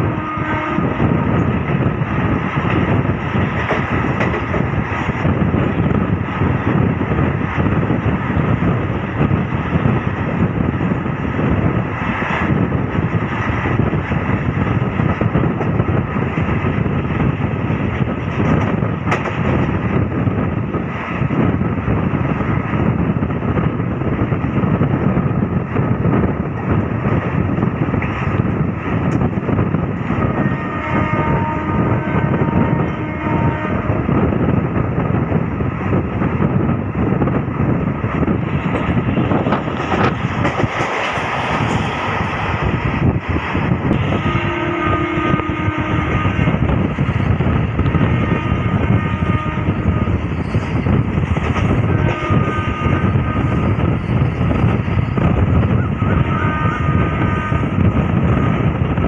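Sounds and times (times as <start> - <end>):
rushing wind: 0.0 - 59.0
train wheels rumbling on rails: 0.0 - 59.0.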